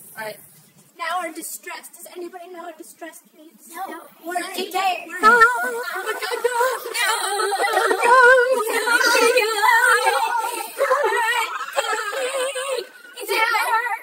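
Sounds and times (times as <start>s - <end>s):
people yelling and laughing: 5.1s - 14.0s.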